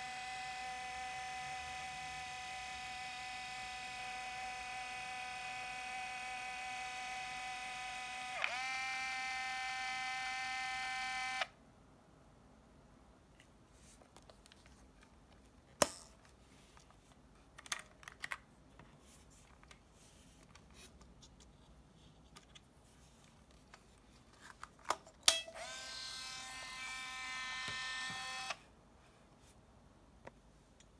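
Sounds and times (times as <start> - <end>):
camera film motor whirring: 0.0 - 11.5, 25.6 - 28.6.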